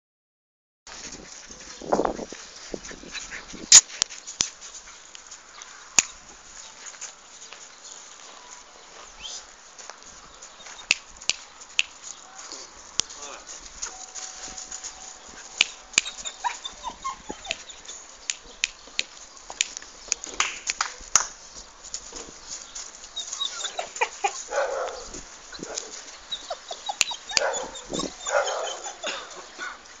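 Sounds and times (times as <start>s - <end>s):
puppy yelping: 15.5s - 18.0s, 23.2s - 29.8s.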